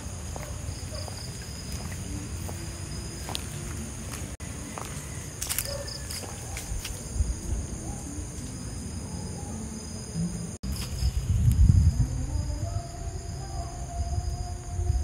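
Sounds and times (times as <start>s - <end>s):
insects trilling: 0.0s - 15.0s
low microphone rumble: 10.2s - 15.0s.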